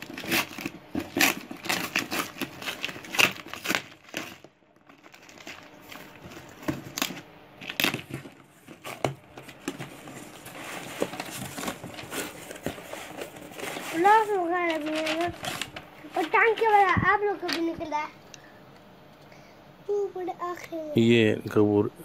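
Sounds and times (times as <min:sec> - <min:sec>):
packing tape torn with a pen: 0:00.0 - 0:05.6
cardboard flaps rustling: 0:00.0 - 0:17.9.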